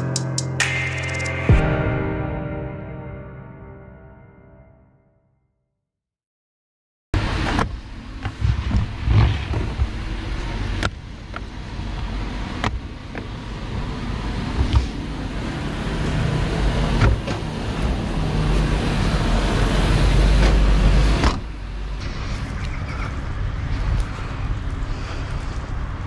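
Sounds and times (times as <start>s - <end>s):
steady low rumble: 7.2s - 26.0s.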